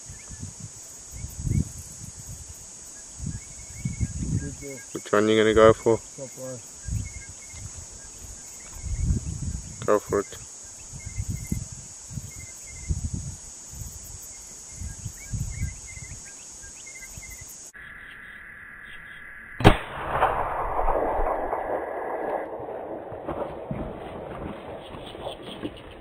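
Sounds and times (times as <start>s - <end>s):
insects buzzing: 0.0s - 19.8s
low wind rumble: 0.1s - 4.8s, 6.8s - 9.9s, 19.3s - 26.0s
faint bird chirps: 2.8s - 11.6s, 14.2s - 19.6s
rifle shot: 19.6s - 25.9s.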